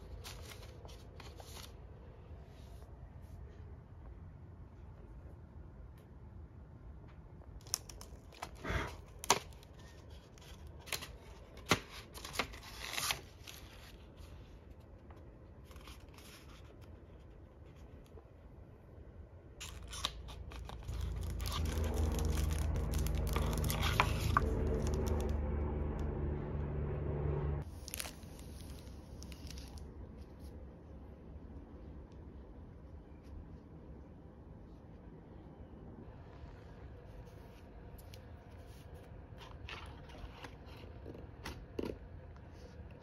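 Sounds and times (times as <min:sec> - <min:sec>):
steady low hum: 0:13.8 - 0:43.0
packaging crinkling: 0:19.6 - 0:25.3
packaging crackling and tearing: 0:19.6 - 0:25.4, 0:27.6 - 0:29.9.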